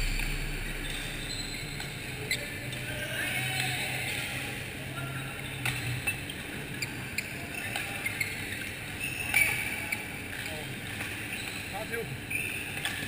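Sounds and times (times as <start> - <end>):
sneakers squeaking on court floor: 5.6 - 10.5, 12.3 - 13.0.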